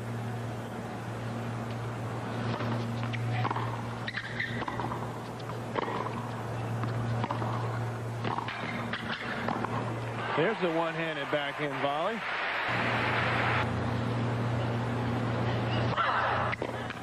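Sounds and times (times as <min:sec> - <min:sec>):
low hum: 0:00.0 - 0:17.0
shoes squeaking on court: 0:01.7 - 0:09.7
racket hitting tennis ball: 0:02.4 - 0:10.0.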